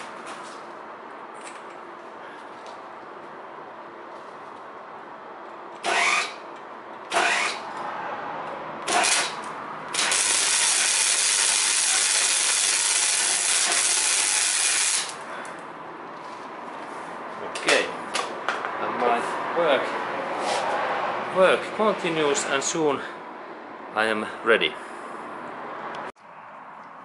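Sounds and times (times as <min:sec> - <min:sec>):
welding arc: 0:05.8 - 0:06.4, 0:07.1 - 0:07.6, 0:08.8 - 0:15.2.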